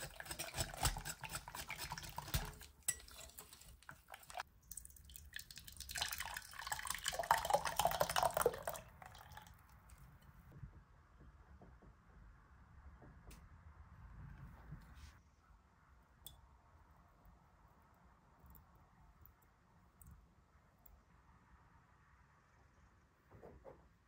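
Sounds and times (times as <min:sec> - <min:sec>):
whisk swishing and clicking in bowl: 0:00.0 - 0:04.4
liquid pouring into saucepan: 0:00.0 - 0:09.6.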